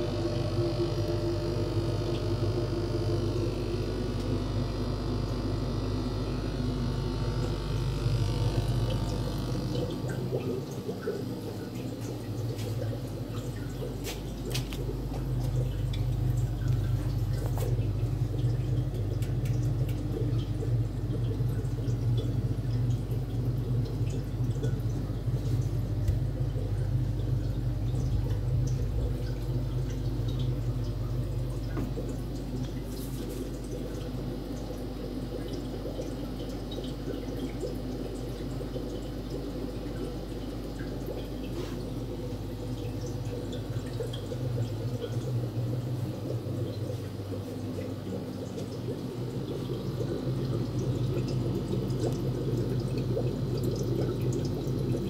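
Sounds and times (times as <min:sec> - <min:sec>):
aquarium air pumps humming: 0:00.0 - 0:55.0
water dripping and trickling: 0:00.1 - 0:55.0.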